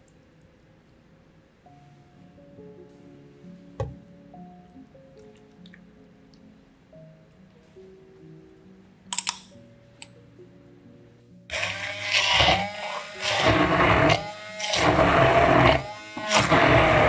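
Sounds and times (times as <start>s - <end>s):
faint background music: 0.0s - 17.0s
immersion blender running: 11.5s - 17.0s.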